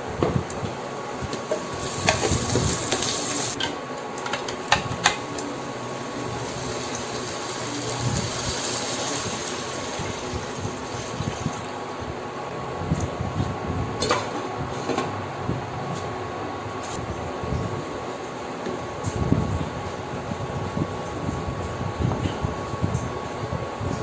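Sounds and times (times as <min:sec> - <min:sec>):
onion frying in oil: 0:00.9 - 0:03.6, 0:04.7 - 0:11.9.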